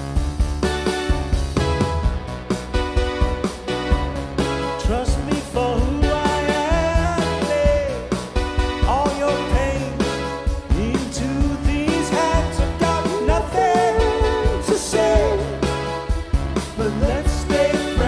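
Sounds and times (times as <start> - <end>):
bass: 0.0 - 18.0
keyboards: 0.0 - 18.0
steady drum beat: 0.0 - 18.0
man singing into a microphone: 4.8 - 8.2, 8.8 - 15.7, 16.8 - 18.0.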